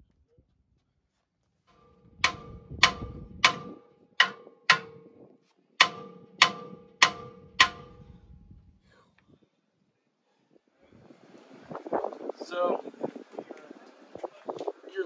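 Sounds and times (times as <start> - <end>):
hammer striking metal: 2.1 - 5.1, 5.8 - 8.2.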